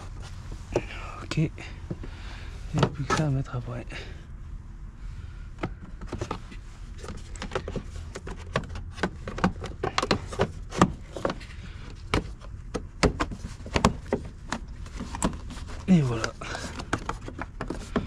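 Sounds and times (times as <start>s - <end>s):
plastic clicking and knocking: 7.0s - 15.4s, 16.2s - 18.0s.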